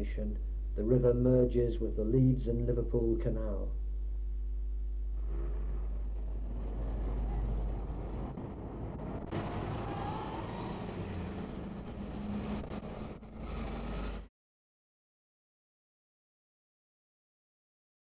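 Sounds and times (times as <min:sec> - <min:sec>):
constant low hum: 0:00.0 - 0:14.2
distant road traffic: 0:05.2 - 0:14.3.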